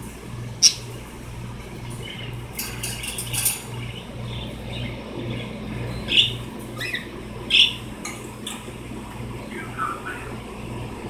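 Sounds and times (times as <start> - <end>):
cockatiels chirping: 0.6 - 0.9, 5.9 - 7.8.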